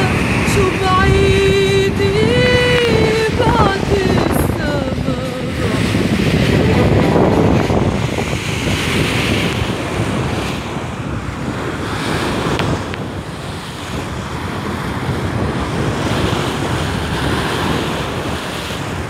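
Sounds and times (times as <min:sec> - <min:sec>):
waves washing over rocky shore: 0:00.0 - 0:19.0
wind rumbling on microphone: 0:00.0 - 0:19.0.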